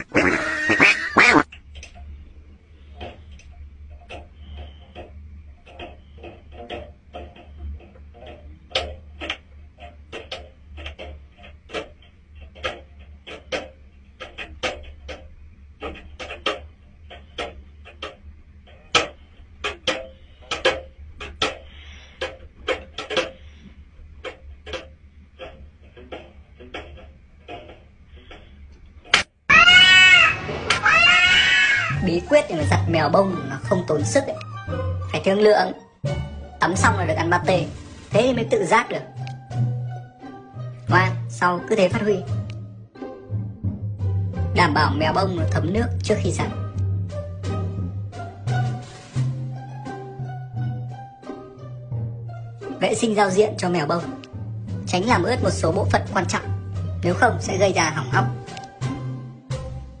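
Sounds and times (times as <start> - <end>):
steady low hum: 0.0 - 29.4.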